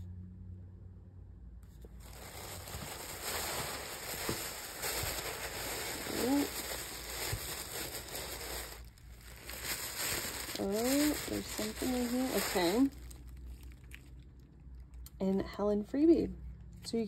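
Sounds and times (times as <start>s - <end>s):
tissue paper rustling: 1.8s - 13.4s.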